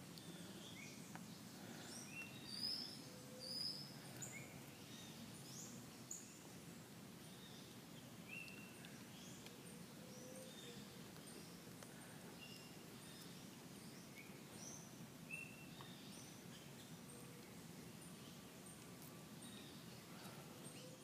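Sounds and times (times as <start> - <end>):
birds chirping and whistling: 1.6 - 6.4, 10.1 - 17.6.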